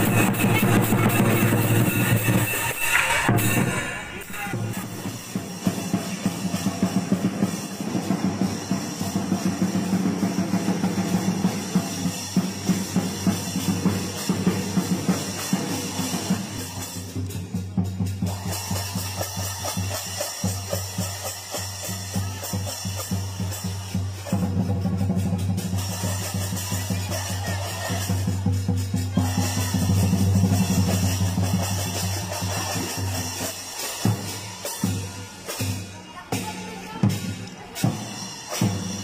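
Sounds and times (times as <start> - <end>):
cymbals clashing: 0.0 - 39.0.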